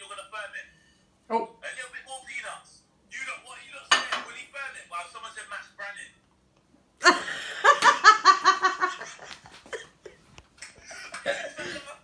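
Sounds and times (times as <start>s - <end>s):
person laughing: 7.0s - 12.0s.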